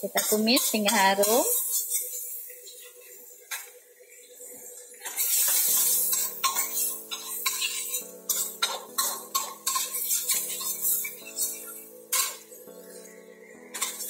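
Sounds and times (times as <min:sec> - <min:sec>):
background music with sustained chords: 0:00.0 - 0:14.0
garlic frying: 0:00.0 - 0:14.0
metal spatula scraping a wok: 0:00.1 - 0:02.8, 0:05.0 - 0:12.5.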